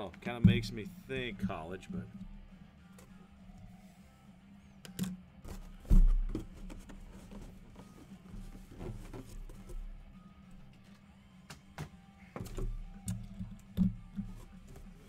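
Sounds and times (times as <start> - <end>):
helmet handling clicks and knocks: 4.8 - 10.0, 10.6 - 15.0.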